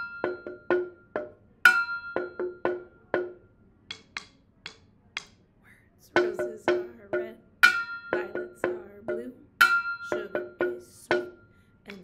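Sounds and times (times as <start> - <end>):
drumsticks tapping tin can: 3.9 - 5.4.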